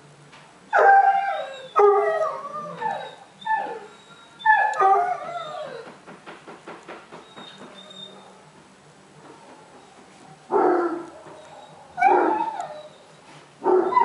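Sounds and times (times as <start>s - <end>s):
puppies howling and yelping: 0.7s - 6.0s, 9.3s - 14.0s.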